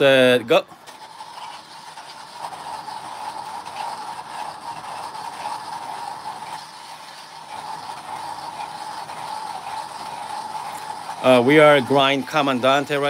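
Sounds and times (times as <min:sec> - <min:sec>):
hand coffee grinder crunching: 0:00.7 - 0:13.0.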